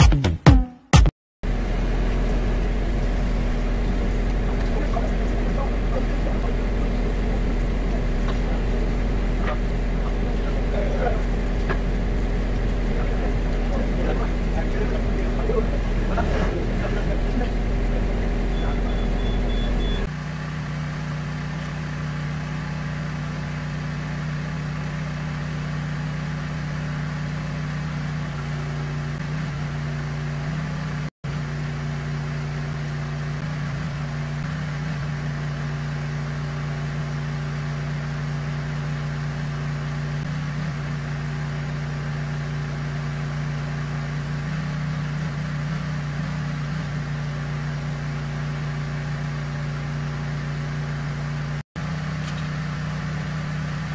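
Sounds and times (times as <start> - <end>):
diesel engine idling: 1.5 - 33.4.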